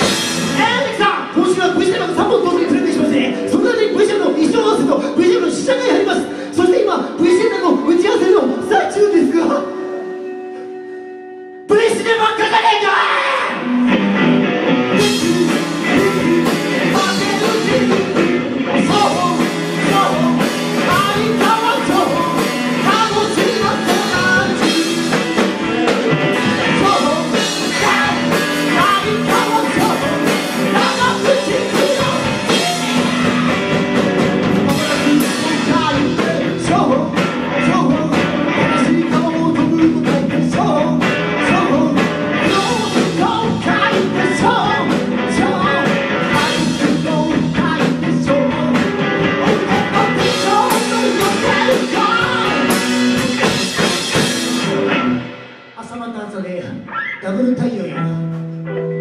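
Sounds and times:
electric guitar playing rock: 0.0s - 55.8s, 56.7s - 59.0s
drum beat: 15.0s - 55.4s.

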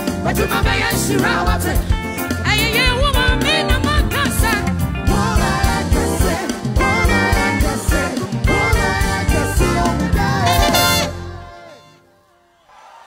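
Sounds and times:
congas: 0.0s - 11.3s
person singing: 0.2s - 12.2s
horns playing: 10.1s - 12.6s
drum beat: 10.2s - 11.1s.

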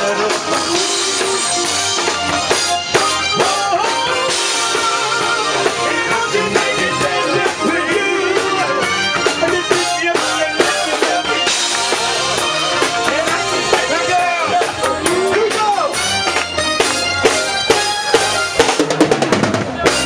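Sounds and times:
vocal group singing: 0.0s - 15.9s
live band playing: 0.0s - 20.0s.

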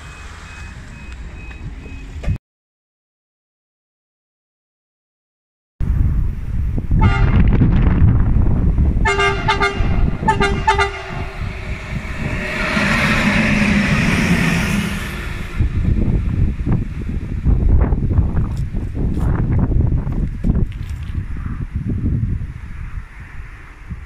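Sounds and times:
wind rumble on microphone: 5.8s - 24.0s
train wheels rumbling on rail: 5.9s - 24.0s
locomotive horn: 7.0s - 7.5s, 9.0s - 11.6s.

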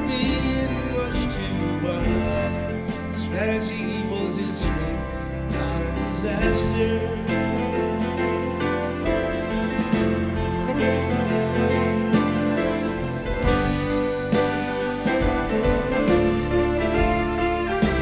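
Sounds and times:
live band playing: 0.0s - 18.0s.

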